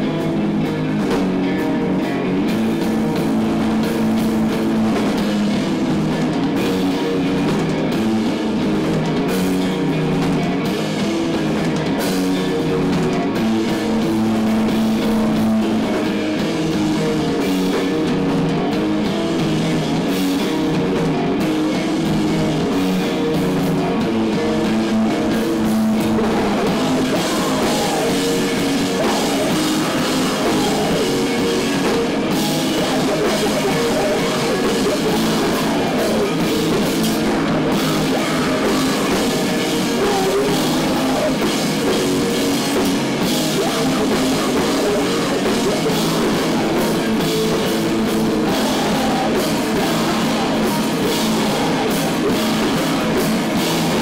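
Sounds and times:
bass guitar: 0:00.0 - 0:54.0
drum kit: 0:00.0 - 0:54.0
electric guitar: 0:00.0 - 0:54.0.

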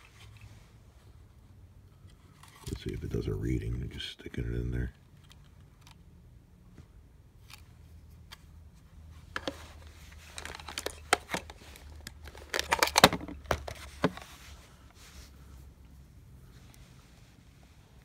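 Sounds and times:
wires rustling and scraping: 0:00.0 - 0:06.0, 0:07.4 - 0:18.0.

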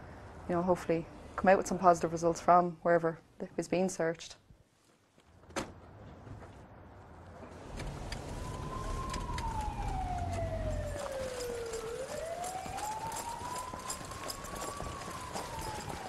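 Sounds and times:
vehicle rumble: 0:05.7 - 0:16.0
police siren wailing: 0:07.8 - 0:16.0
running footsteps: 0:08.5 - 0:16.0.

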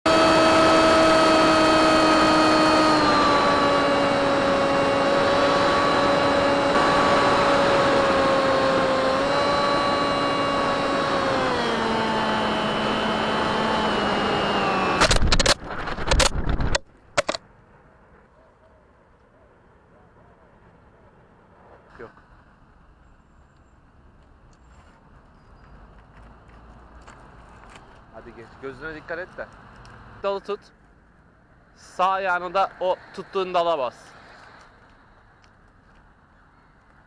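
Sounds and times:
model plane motor whining: 0:00.1 - 0:16.4
wind rush: 0:15.0 - 0:16.8.

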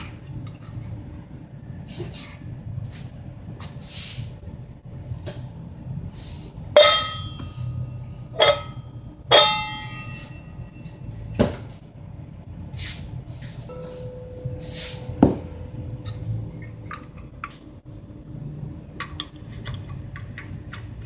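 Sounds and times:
metal pot clanging on stove: 0:06.8 - 0:07.6, 0:08.4 - 0:10.4.

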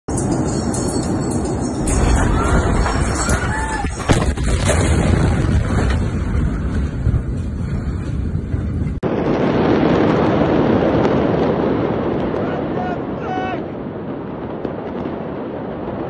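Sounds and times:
dull rushing noise: 0:00.1 - 0:14.2.

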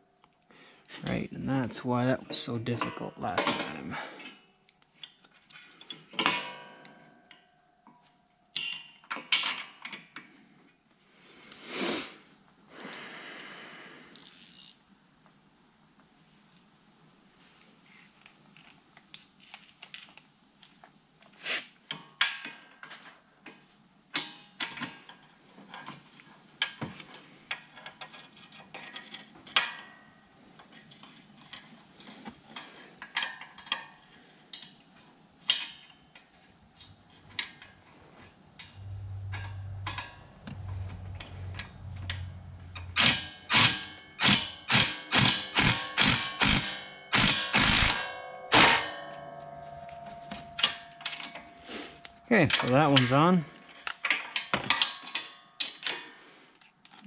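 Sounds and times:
ratchet wrench clicking: 0:14.1 - 0:14.8, 0:42.1 - 0:48.0.

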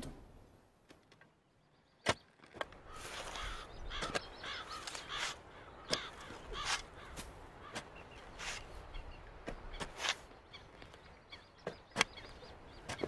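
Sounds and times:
crows cawing: 0:02.8 - 0:07.9.

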